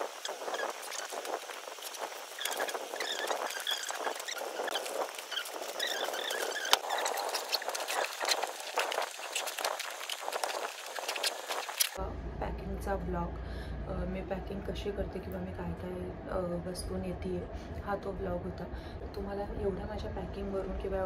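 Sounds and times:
fabric pouches rustling: 0.0 - 12.0.

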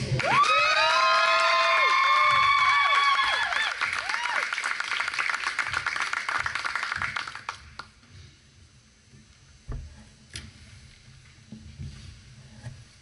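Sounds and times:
audience applause: 0.0 - 8.0
scattered claps and knocks: 2.1 - 8.0.

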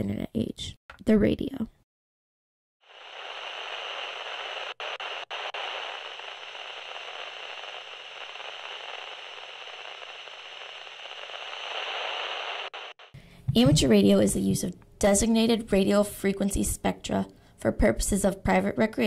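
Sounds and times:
radio static hiss: 2.8 - 13.9.

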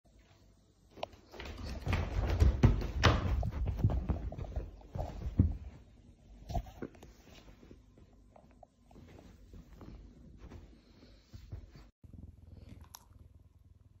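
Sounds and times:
animal thumping on a sofa: 1.5 - 5.8.

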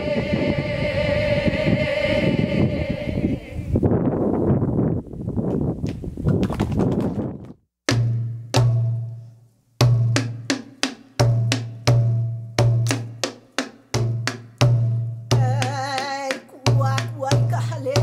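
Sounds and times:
person chanting: 0.0 - 3.7, 15.4 - 18.0
hand drum beating: 7.9 - 9.1, 9.8 - 18.0.

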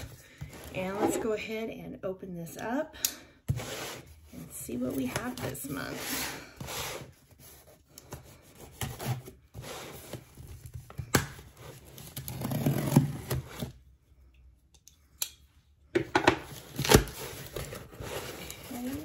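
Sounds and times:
cardboard box tearing: 11.5 - 13.8
cardboard scraping and rustling: 16.5 - 19.0.

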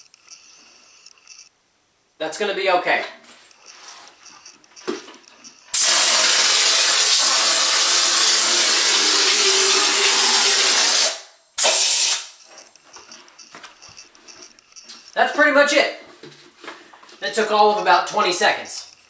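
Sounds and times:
compressed air spray hiss: 5.8 - 7.9, 10.2 - 12.4.

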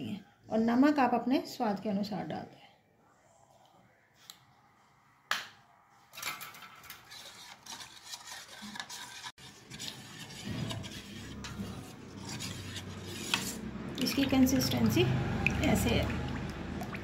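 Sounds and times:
spoon scraping steel bowl: 6.9 - 16.0.

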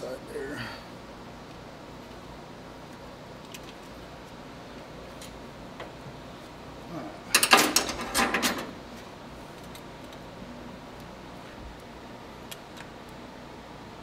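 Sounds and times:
metal tools clicking and rattling: 7.3 - 8.7.

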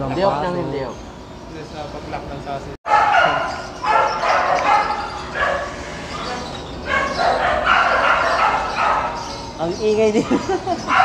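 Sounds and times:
dog barking: 2.9 - 9.5, 10.2 - 11.0.

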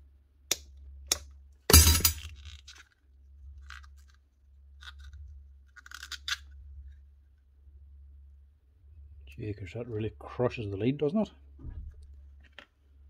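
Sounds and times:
tools clattering: 1.7 - 2.3
small clicks and scrapes: 2.2 - 7.0.

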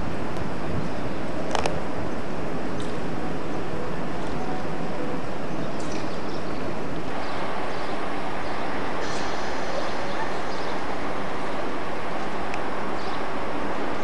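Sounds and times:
trains rushing through station: 0.0 - 14.0.

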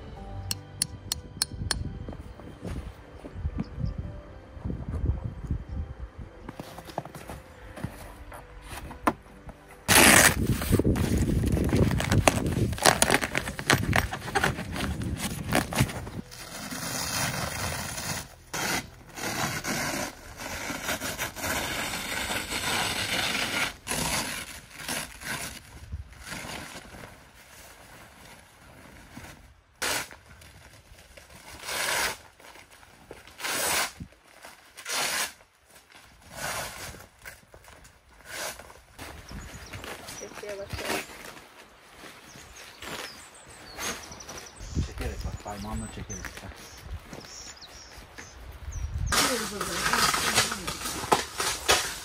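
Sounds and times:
tent fabric rustling: 6.5 - 45.2.

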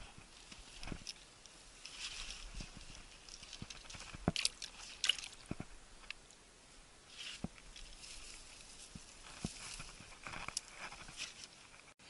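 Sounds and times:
grass rustling: 0.0 - 12.0
footsteps crunching on clay: 7.2 - 12.0.

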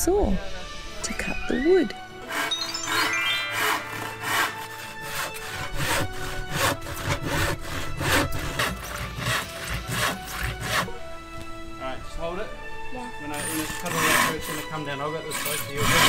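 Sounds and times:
background music: 0.0 - 16.0
hand saw cutting wood: 2.2 - 11.0, 13.3 - 16.0.

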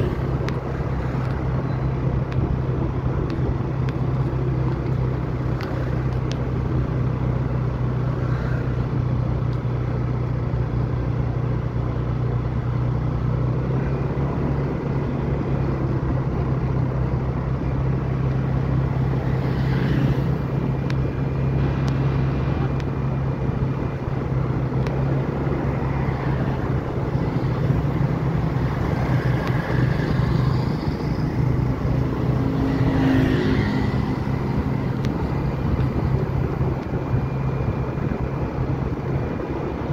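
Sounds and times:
vehicle engine humming: 0.0 - 39.9.

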